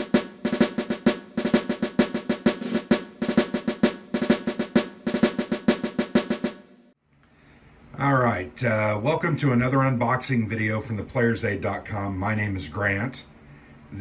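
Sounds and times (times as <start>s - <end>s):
snare drum rolls: 0.0s - 7.0s.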